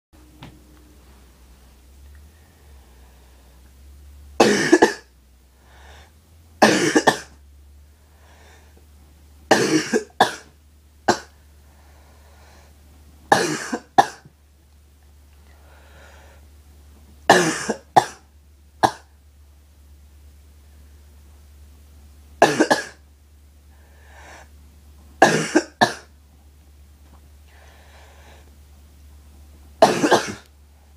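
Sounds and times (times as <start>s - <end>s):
person coughing harshly: 4.4s - 5.1s, 6.6s - 7.4s, 9.5s - 10.5s, 11.1s - 11.3s, 13.3s - 14.3s, 17.3s - 18.2s, 22.4s - 23.0s, 25.2s - 26.1s, 29.8s - 30.5s.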